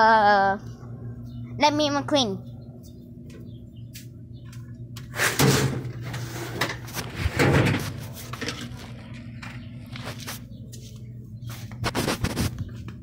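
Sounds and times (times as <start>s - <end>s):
steady low hum: 0.0s - 13.0s
clattering scraping bursts: 5.1s - 8.9s.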